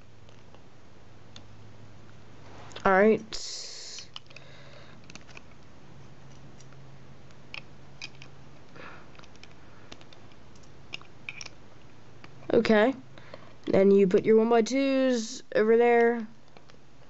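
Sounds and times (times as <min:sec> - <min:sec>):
steady low hum: 0:00.0 - 0:17.0
plastic bricks clicking: 0:04.0 - 0:05.6, 0:07.5 - 0:08.4, 0:09.1 - 0:11.6.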